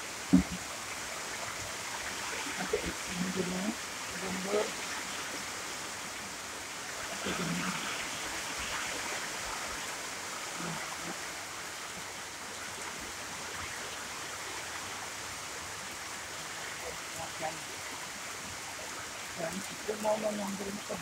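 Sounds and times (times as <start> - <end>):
steady rain falling: 0.0 - 21.0
faint voice-like sound: 7.2 - 8.0, 10.6 - 11.2.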